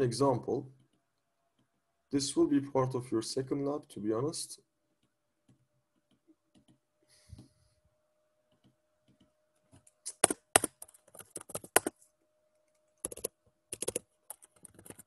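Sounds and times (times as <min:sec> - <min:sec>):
computer keyboard typing: 0:10.1 - 0:11.9, 0:13.0 - 0:15.0.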